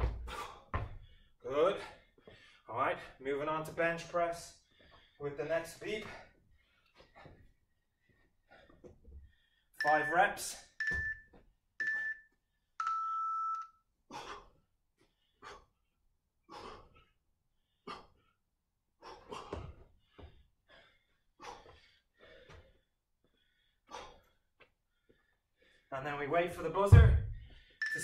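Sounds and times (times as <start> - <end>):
interval timer beeps: 9.8 - 13.8, 27.8 - 28.0.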